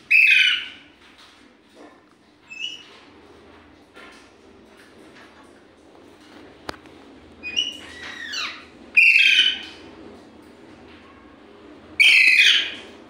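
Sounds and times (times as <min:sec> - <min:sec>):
parakeet harsh screeches: 0:00.1 - 0:00.8, 0:07.4 - 0:09.7, 0:12.0 - 0:12.8
parakeets chirping and squawking: 0:00.1 - 0:00.8, 0:07.4 - 0:09.7, 0:12.0 - 0:12.8.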